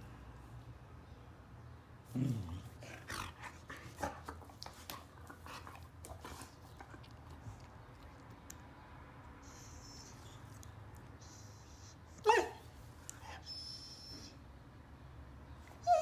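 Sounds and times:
dog grumbling: 2.1 - 3.6
dog licking and mouth clicks: 4.5 - 9.3.

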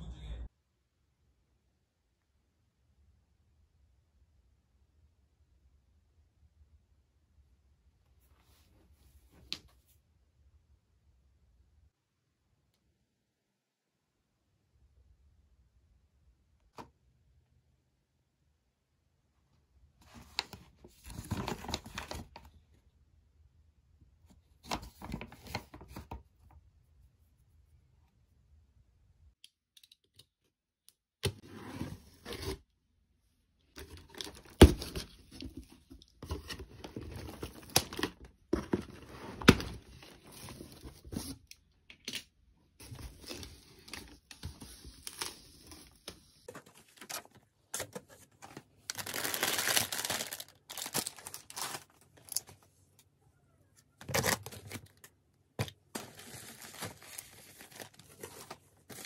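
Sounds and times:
cardboard box contents rustling: 33.8 - 41.4, 42.8 - 52.5, 55.6 - 59.0
foil snack bag rustling: 48.9 - 52.5, 56.0 - 59.0.

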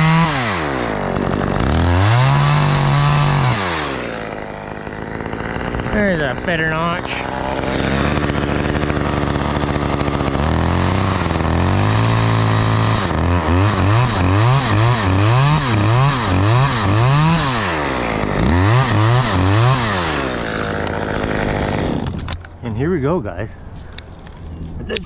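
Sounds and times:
chainsaw cutting wood: 0.0 - 22.6.

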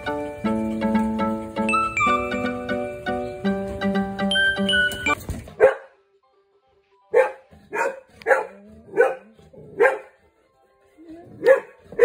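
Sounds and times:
dog barking: 5.6 - 6.0, 7.1 - 10.2, 11.4 - 12.0.

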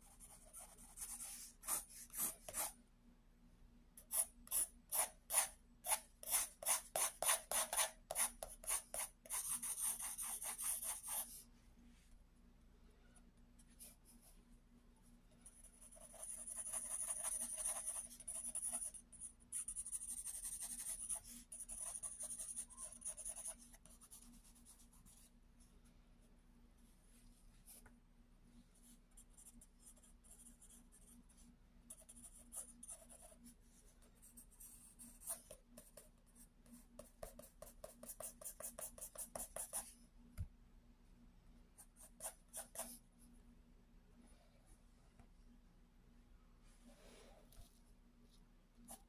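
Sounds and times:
pencil scratching on paper: 0.0 - 2.8, 4.1 - 11.4, 15.5 - 25.3, 28.8 - 39.9, 41.8 - 43.0
faint steady hum: 0.0 - 49.0.

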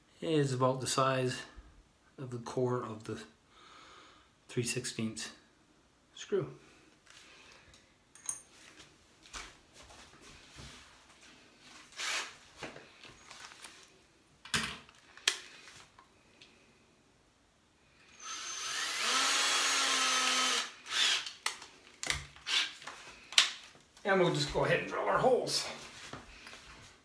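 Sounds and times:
drill being handled: 11.9 - 13.8, 18.2 - 23.7
power drill running: 12.0 - 12.3, 18.1 - 21.4, 22.4 - 22.8.

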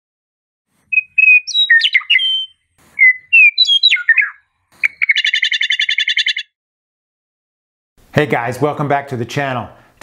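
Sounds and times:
bird chattering rattle: 0.9 - 6.4
bird whistling flute-like notes: 0.9 - 6.5.

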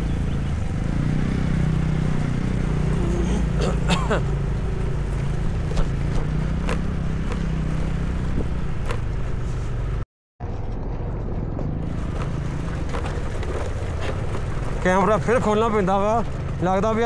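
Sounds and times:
motorbike engine running: 0.0 - 10.0
knocks and rattles on stony ground: 10.4 - 15.3.

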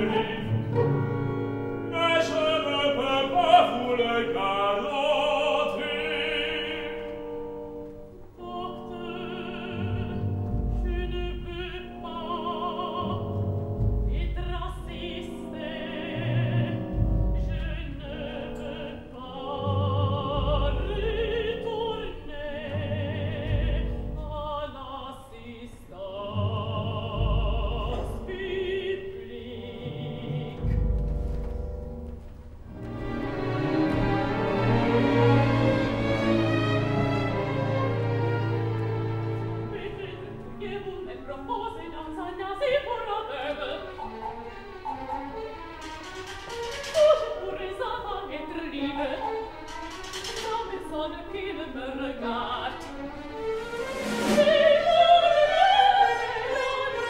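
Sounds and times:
man singing opera: 0.0 - 1.2, 1.8 - 7.4, 8.4 - 13.4, 14.0 - 30.8, 39.0 - 44.2
woman singing opera: 0.0 - 7.3, 8.4 - 30.9, 33.9 - 57.0
orchestra playing: 0.0 - 24.8, 26.0 - 57.0.

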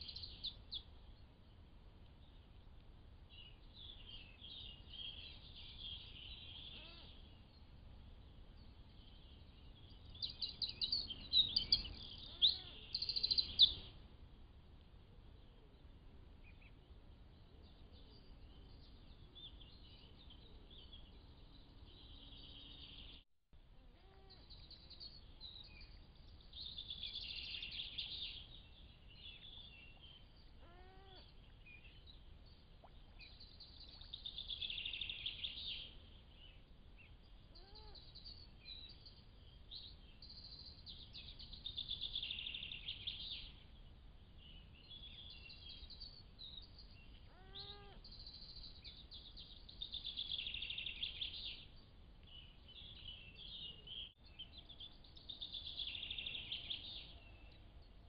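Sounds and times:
steady low hiss: 0.0 - 58.0
birds singing: 3.3 - 7.7, 9.0 - 13.9, 24.1 - 43.6, 44.4 - 57.8
rising and falling bird call: 47.3 - 48.0.

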